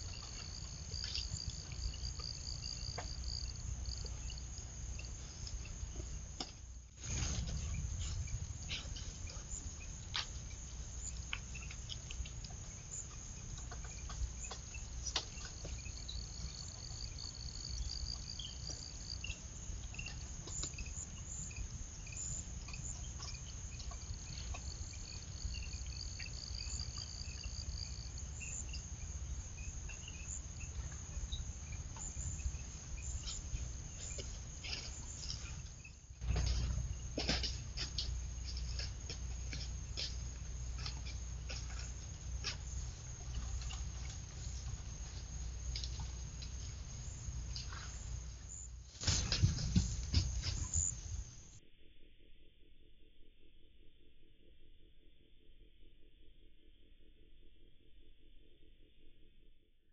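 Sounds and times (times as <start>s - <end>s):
pulsing insect trill: 0.0s - 59.4s
low rumble: 6.7s - 13.2s.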